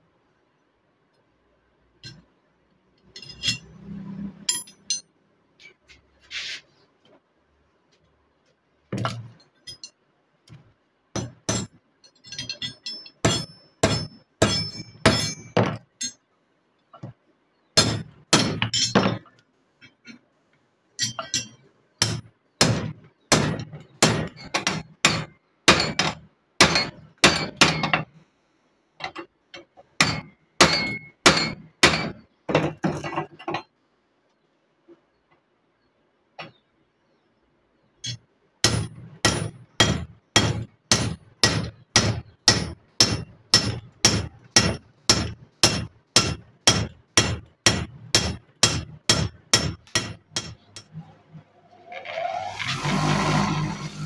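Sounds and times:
hammer striking metal: 11.2s - 16.2s, 17.8s - 19.2s, 21.0s - 28.1s, 30.0s - 33.2s, 38.0s - 51.0s.

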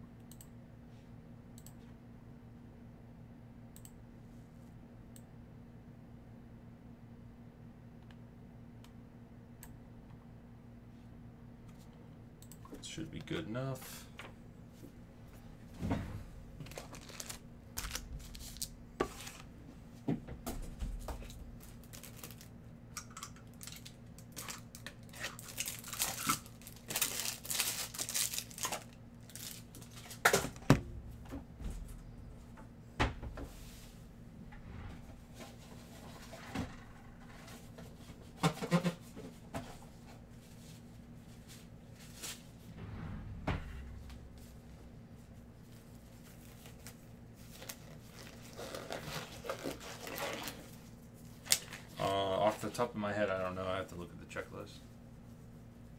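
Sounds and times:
wrapping torn and crinkled: 16.6s - 19.4s, 21.6s - 22.5s, 23.5s - 30.2s, 46.2s - 52.0s.

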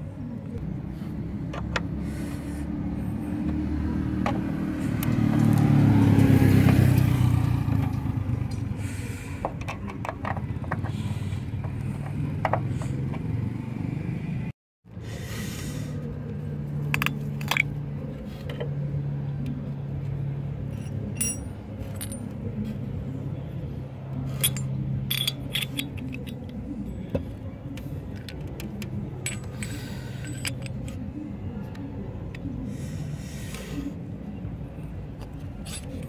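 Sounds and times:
metal wrench clinking: 20.7s - 22.5s, 24.3s - 27.0s, 28.2s - 31.0s.

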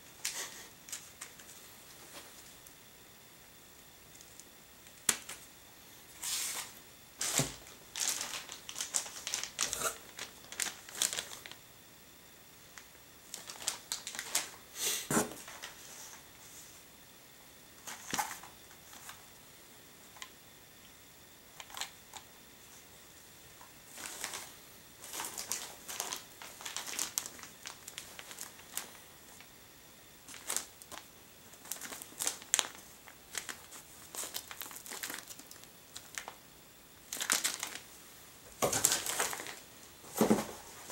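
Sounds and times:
packaging rustling and crinkling: 6.2s - 11.6s, 12.7s - 16.2s, 17.8s - 19.2s, 21.6s - 22.2s, 23.6s - 29.5s, 30.2s - 36.4s, 37.0s - 40.9s.

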